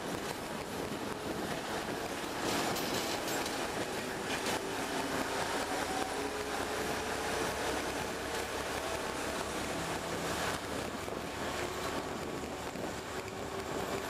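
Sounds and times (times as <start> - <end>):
train wheels and wind rumbling: 0.0 - 14.0
clattering knocks over rails: 2.4 - 4.6.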